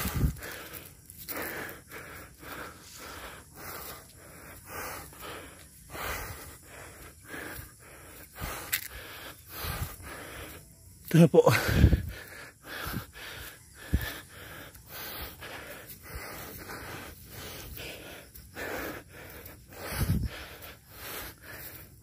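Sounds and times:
man panting heavily: 0:00.0 - 0:22.0.

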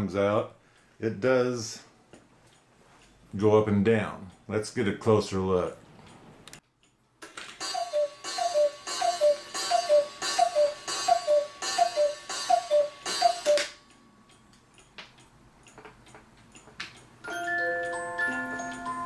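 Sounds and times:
faint clock clicks: 0:05.6 - 0:19.0
music box tune: 0:07.6 - 0:14.5, 0:17.2 - 0:19.0
cuckoo clock calling: 0:07.6 - 0:14.9, 0:16.5 - 0:19.0.

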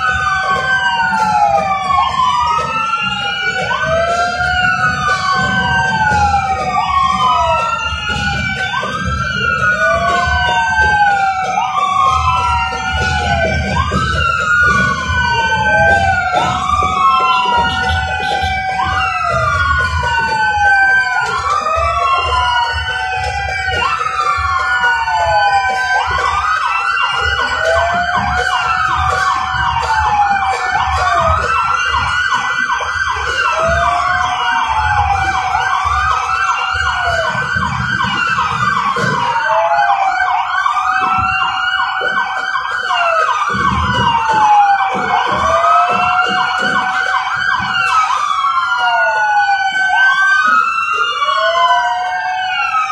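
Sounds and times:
vehicle sirens wailing: 0:00.0 - 0:52.9.

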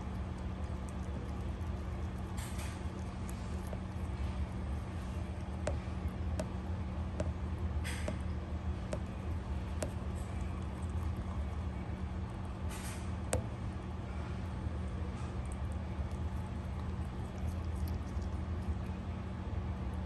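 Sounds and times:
rabbit nibbling clicks: 0:00.0 - 0:06.6, 0:14.8 - 0:20.0
steady low hum: 0:00.0 - 0:20.0.

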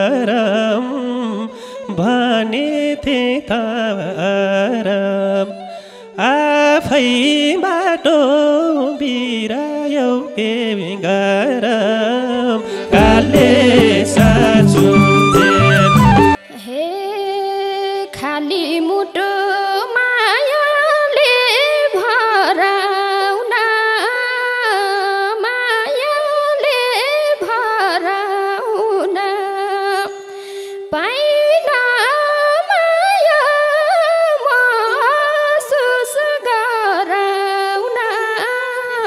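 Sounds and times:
ornamented folk melody: 0:12.2 - 0:16.4.

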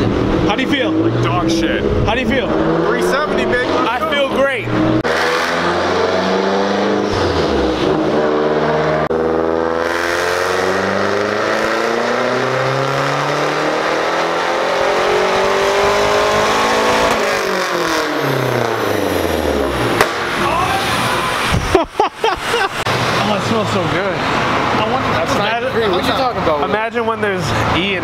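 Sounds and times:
car engine full-throttle pull: 0:00.0 - 0:21.7.

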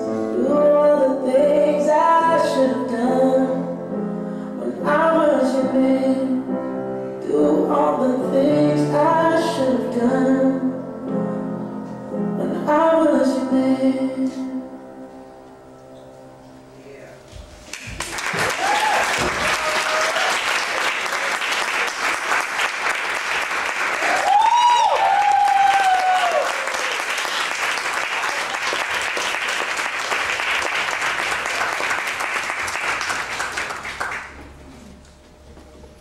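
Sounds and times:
audience applauding: 0:17.7 - 0:34.4
person cheering: 0:18.3 - 0:20.5, 0:24.0 - 0:27.1.

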